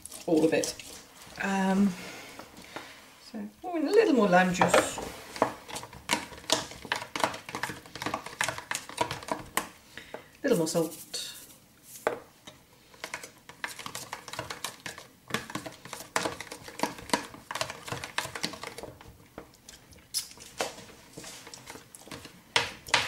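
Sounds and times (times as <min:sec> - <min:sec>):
metal spoon scraping plastic tub: 0:00.0 - 0:02.8, 0:04.0 - 0:09.6.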